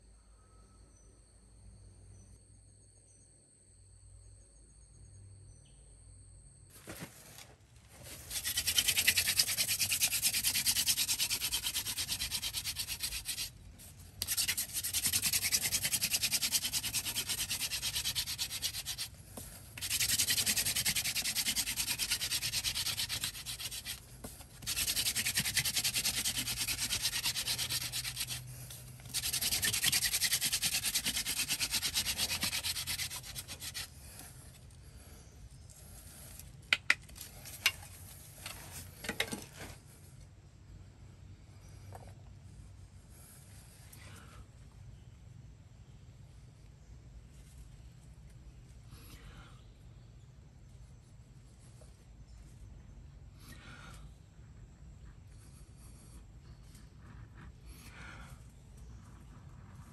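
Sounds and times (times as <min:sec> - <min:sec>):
hand drill rasping on wood: 0:08.1 - 0:34.6.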